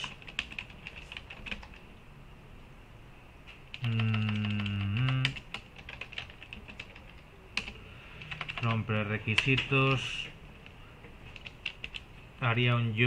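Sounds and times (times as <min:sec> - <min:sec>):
computer keyboard typing: 0:00.0 - 0:01.8, 0:03.7 - 0:10.3, 0:11.3 - 0:12.1
man humming: 0:03.8 - 0:05.4.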